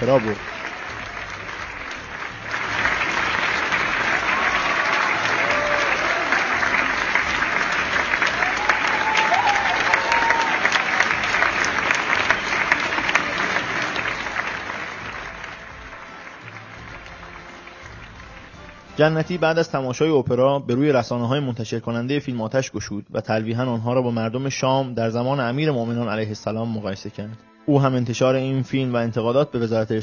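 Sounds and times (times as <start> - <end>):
audience applauding: 0.0 - 19.5.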